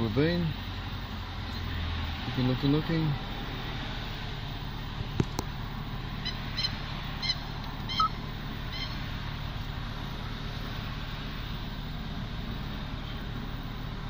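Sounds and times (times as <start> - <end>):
car engine and fan hum: 0.0 - 14.0
short high chirps: 6.6 - 9.0.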